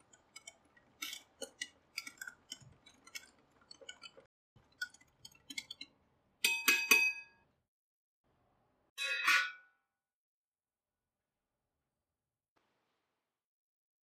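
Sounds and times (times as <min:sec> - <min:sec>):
whisk wires tapping bowl: 0:00.0 - 0:07.2.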